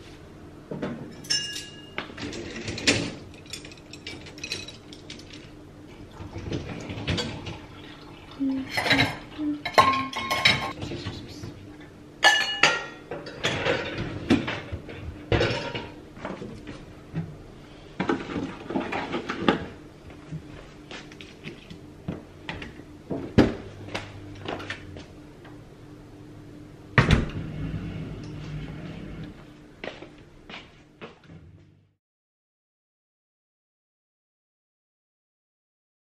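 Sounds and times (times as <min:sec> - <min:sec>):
dishes and cutlery clinking: 0:01.1 - 0:05.4, 0:08.7 - 0:10.8, 0:12.2 - 0:14.1
dishwasher racks rattling: 0:01.2 - 0:05.4, 0:08.8 - 0:10.7, 0:12.3 - 0:14.7, 0:15.3 - 0:16.0
dishwasher door shutting: 0:27.0 - 0:27.6.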